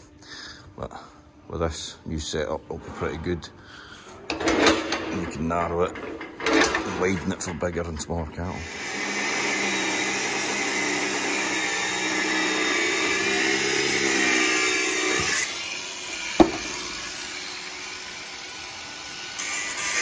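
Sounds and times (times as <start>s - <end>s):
disc cutter cutting steel: 8.5s - 20.0s
sharp knock: 16.4s - 16.8s.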